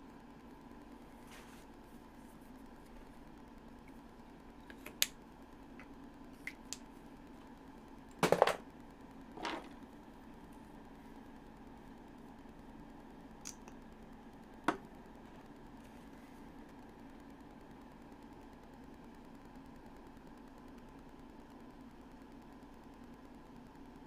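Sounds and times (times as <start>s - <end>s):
soft rustle: 1.1s - 3.2s.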